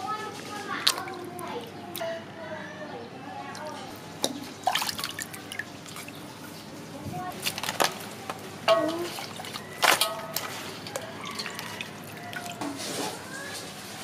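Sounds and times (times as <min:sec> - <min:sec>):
water sloshing and dripping: 0:00.2 - 0:02.2, 0:03.5 - 0:14.0
wet slaps and splashes: 0:00.8 - 0:02.1, 0:04.2 - 0:06.2, 0:07.4 - 0:12.8.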